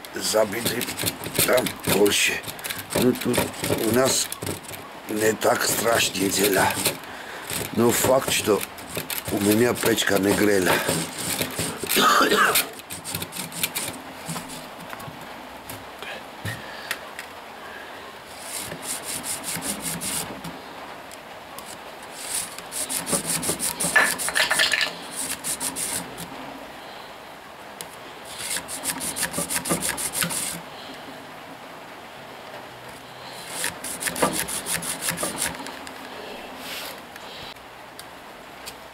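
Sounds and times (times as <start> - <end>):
metal rod scraping in tubes: 0.2 - 14.7, 18.3 - 20.3, 22.1 - 26.3, 28.3 - 30.6, 33.4 - 35.8.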